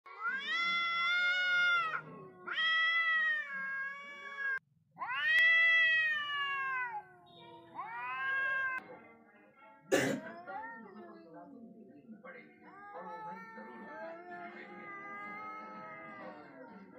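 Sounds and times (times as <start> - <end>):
cats yowling: 0.1 - 8.8, 12.7 - 16.8.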